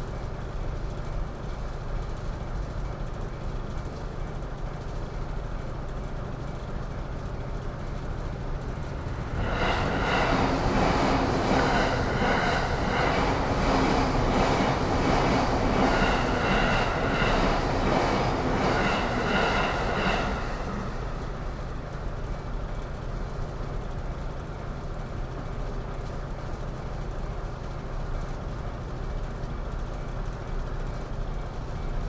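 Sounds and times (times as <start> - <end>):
street noise: 0.0 - 32.0
electric train passing: 5.0 - 25.9.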